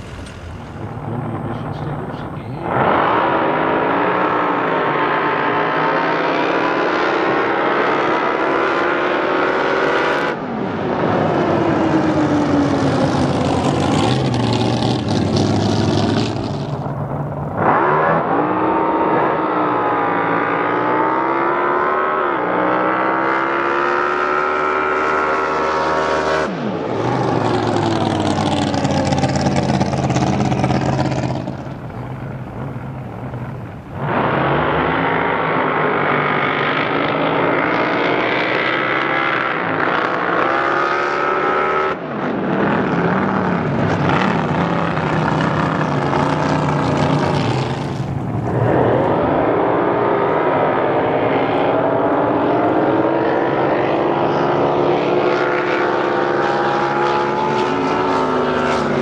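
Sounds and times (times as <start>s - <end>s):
racing boat engines passing: 11.2s - 16.8s, 26.0s - 35.4s.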